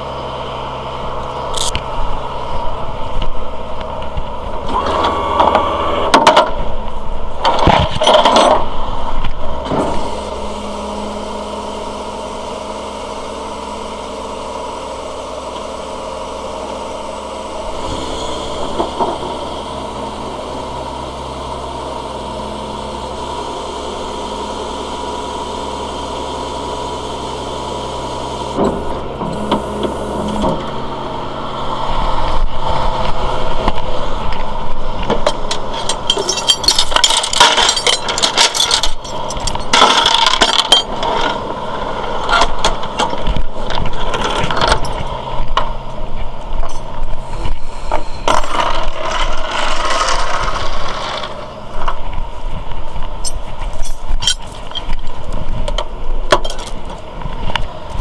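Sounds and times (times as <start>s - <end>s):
truck engine idling: 0.0s - 58.0s
metal chains clanking and rattling: 7.8s - 8.7s, 35.3s - 41.4s, 46.4s - 47.0s, 53.2s - 58.0s.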